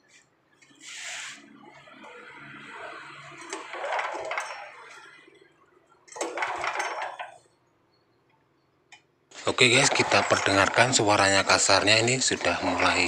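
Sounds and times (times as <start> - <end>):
engine recoil starter pulls: 0.9 - 5.3, 6.0 - 7.5, 9.3 - 13.0.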